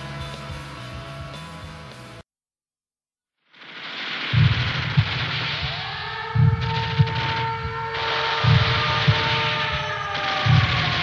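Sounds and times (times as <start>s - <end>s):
rock music with guitar: 0.0s - 2.2s.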